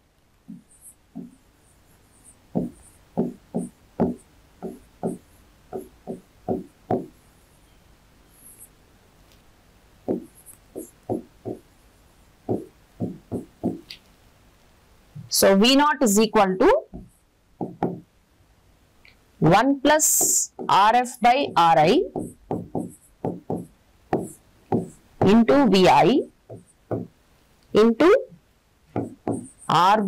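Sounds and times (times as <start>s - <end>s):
taps and knocks writing on board: 0.5s - 1.4s, 2.2s - 7.2s, 10.0s - 11.7s, 12.4s - 13.9s, 16.9s - 18.1s, 20.0s - 25.4s, 26.2s - 27.2s, 28.9s - 29.7s
faint high scratching: 7.2s - 8.8s.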